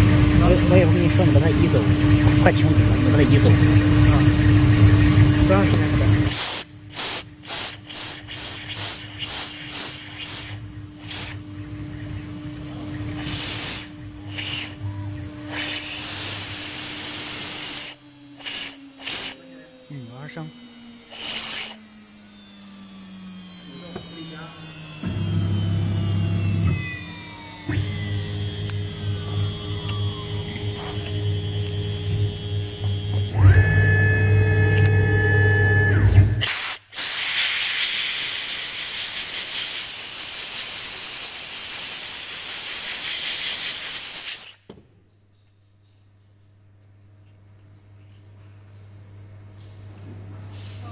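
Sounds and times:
engraving machine spindle whining: 0.0 - 36.6, 37.6 - 44.6
steady hum with held tones: 0.0 - 37.0, 37.6 - 50.9
air blow gun hissing: 6.3 - 11.4, 13.1 - 14.8, 15.5 - 19.5, 21.1 - 21.9, 36.4 - 44.7
short bursts of hiss: 6.3 - 11.4.

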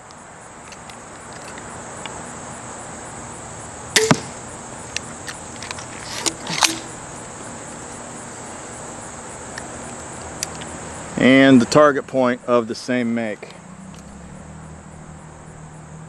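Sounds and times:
crossbow handling clicks and rattles: 0.6 - 2.1, 4.9 - 6.9, 9.5 - 10.7
bolt striking target: 4.0 - 4.4
crossbow string snap: 4.0 - 4.4, 6.2 - 6.9.

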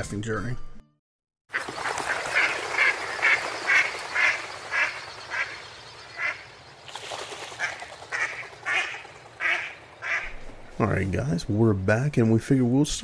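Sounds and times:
ducks quacking: 1.5 - 6.6, 7.4 - 10.4.

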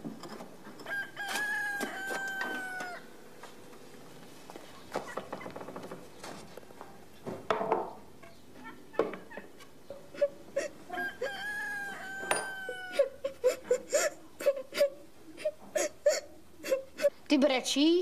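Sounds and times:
rooster crowing: 0.8 - 3.1, 10.9 - 13.2
person sobbing: 10.1 - 11.4, 12.7 - 17.2.

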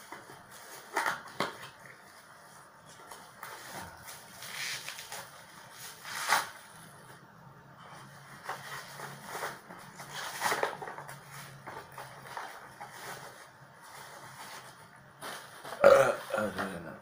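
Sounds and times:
plastic wrapping crinkling: 0.0 - 7.2.

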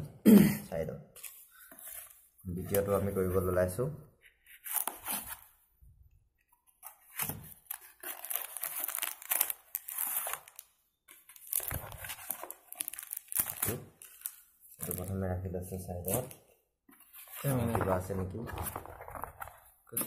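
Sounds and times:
cardboard tearing: 6.8 - 10.6
plastic bag rustling and crinkling: 11.3 - 15.2, 17.2 - 20.0.

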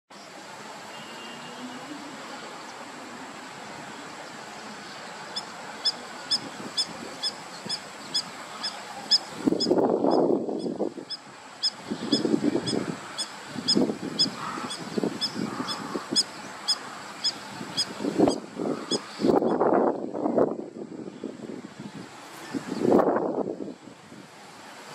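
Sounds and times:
high-pitched peeping: 5.3 - 19.0.

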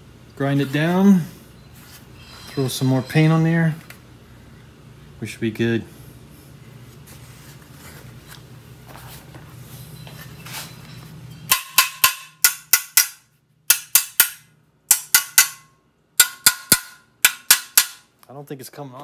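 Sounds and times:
low steady hum: 0.0 - 19.0
metal impacts ringing: 10.9 - 18.1.

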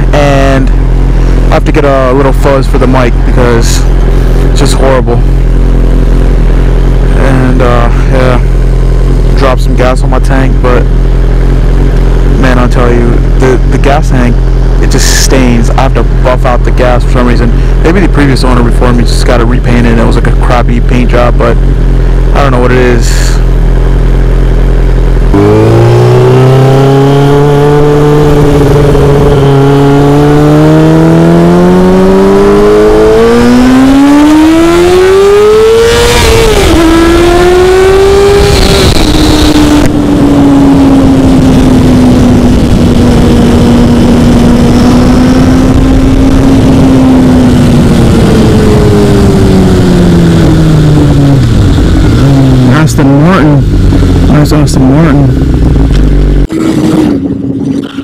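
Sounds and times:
motorcycle engine accelerating: 0.0 - 58.0
wind noise on microphone: 35.8 - 52.7, 53.5 - 54.3.

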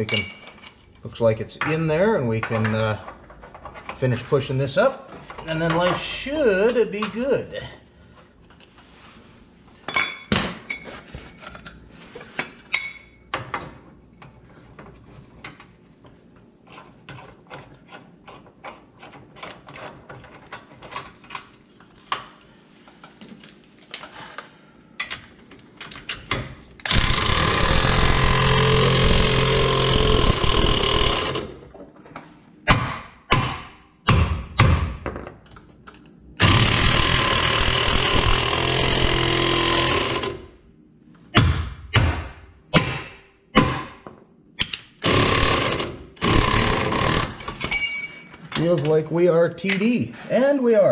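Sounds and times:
metal tools clinking and knocking: 0.0 - 4.1, 12.4 - 13.2, 19.0 - 21.4, 47.6 - 49.0, 49.6 - 50.1
air impact wrench running: 26.8 - 31.6, 36.4 - 40.5, 45.0 - 47.6.

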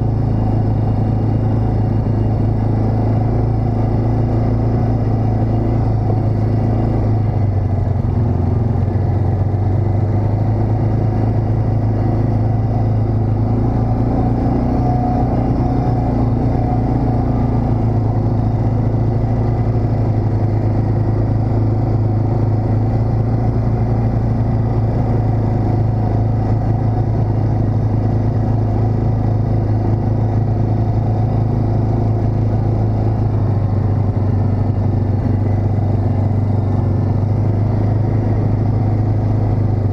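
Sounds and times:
atv engine droning: 0.0 - 39.9.

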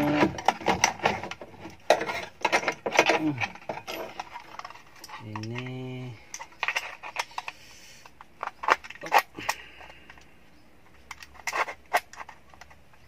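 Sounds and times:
plastic and metal clicks and knocks: 0.0 - 5.7.

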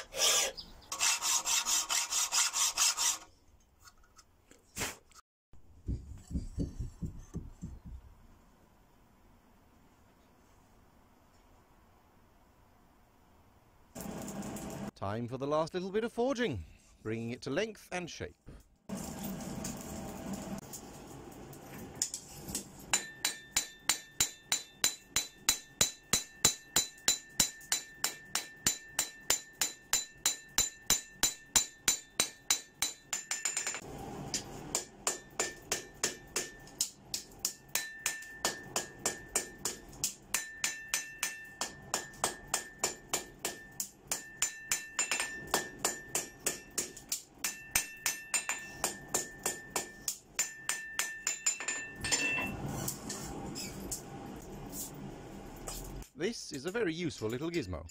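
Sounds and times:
anvil ringing: 22.9 - 33.8, 37.4 - 52.5
hammer striking steel on anvil: 22.9 - 52.5.

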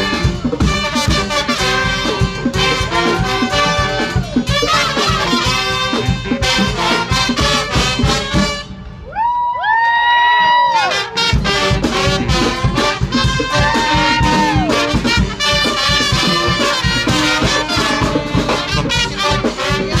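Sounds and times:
fast percussion beat: 0.0 - 8.6, 11.2 - 20.0
brass band playing: 0.0 - 9.1, 10.7 - 20.0.

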